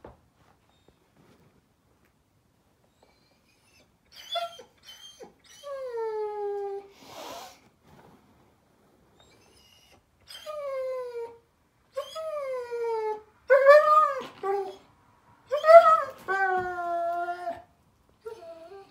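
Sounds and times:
puppy whining: 0:02.8 - 0:06.9, 0:09.2 - 0:14.9, 0:15.5 - 0:18.9.

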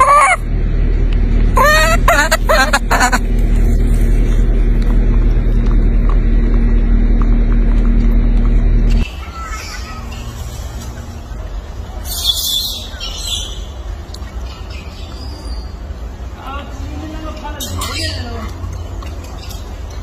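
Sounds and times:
baby monkey cooing: 0:00.0 - 0:00.4, 0:01.6 - 0:03.2
low rumble: 0:00.0 - 0:09.1.

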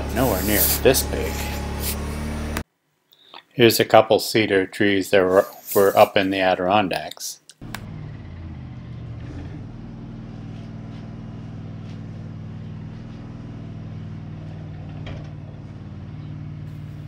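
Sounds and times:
sawmill engine running steadily: 0:00.0 - 0:02.6, 0:10.2 - 0:17.0.

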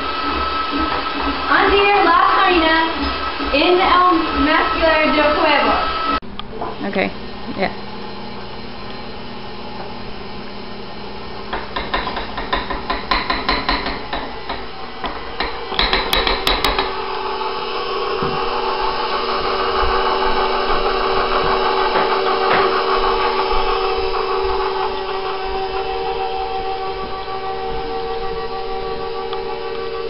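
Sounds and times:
stand mixer motor hum: 0:00.0 - 0:30.0
clattering knocks: 0:21.4 - 0:22.9.

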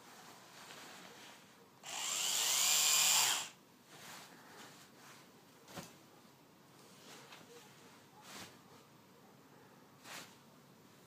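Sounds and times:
epilator motor whirring: 0:01.8 - 0:03.6.

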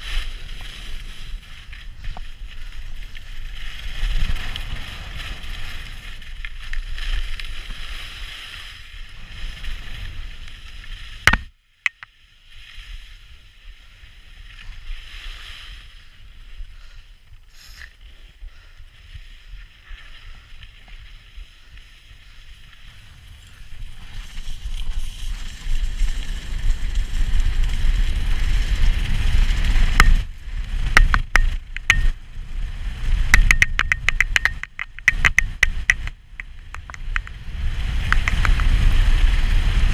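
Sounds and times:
skis scraping over snow: 0:00.0 - 0:11.2, 0:12.3 - 0:30.9, 0:36.4 - 0:39.9
sharp knock: 0:11.3 - 0:12.1, 0:33.4 - 0:37.3
wind rushing over microphone: 0:21.6 - 0:39.9
sharp clicks: 0:31.0 - 0:32.2, 0:33.3 - 0:37.4, 0:38.0 - 0:38.8.

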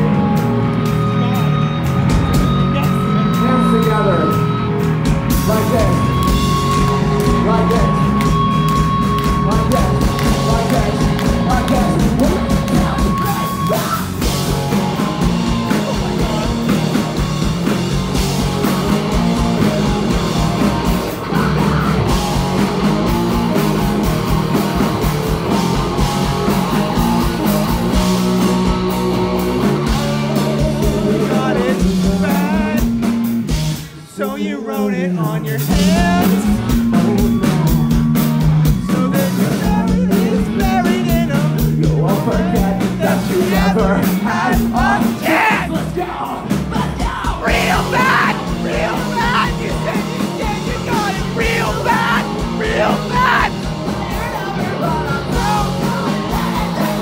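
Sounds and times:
electric guitars: 0:00.0 - 0:34.1, 0:35.5 - 0:57.0
bass guitar: 0:00.0 - 0:57.0
drums: 0:00.0 - 0:57.0
person singing: 0:29.9 - 0:33.0, 0:34.2 - 0:37.7, 0:38.7 - 0:45.8, 0:54.1 - 0:57.0.

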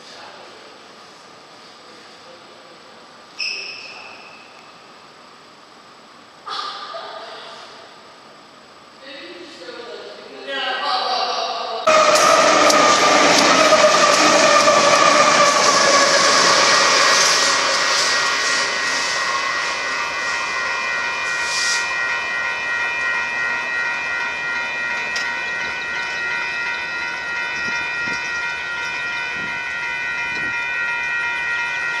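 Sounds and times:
diesel locomotives whining: 0:11.9 - 0:32.0.

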